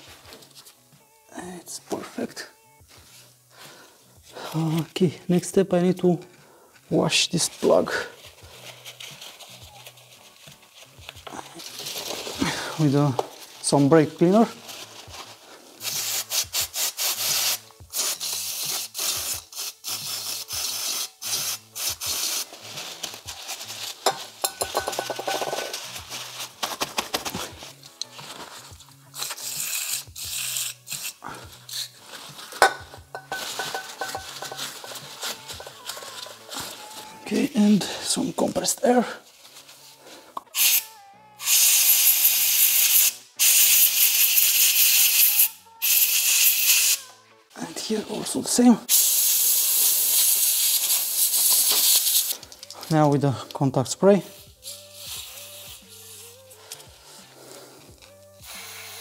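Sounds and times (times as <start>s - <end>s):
aerosol can hissing: 15.8s - 26.1s, 29.1s - 37.2s, 40.5s - 47.0s, 48.9s - 52.7s, 54.3s - 59.0s.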